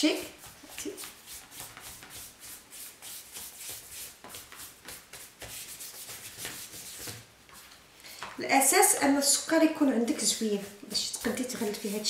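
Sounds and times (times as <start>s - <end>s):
hands rubbing fondant: 0.0s - 7.7s, 10.0s - 12.0s.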